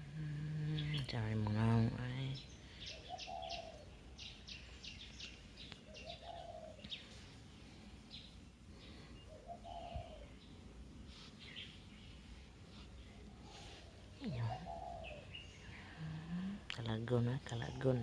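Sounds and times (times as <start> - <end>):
birds chirping: 0.0 - 18.0
low bird call: 8.1 - 10.6, 13.5 - 16.6.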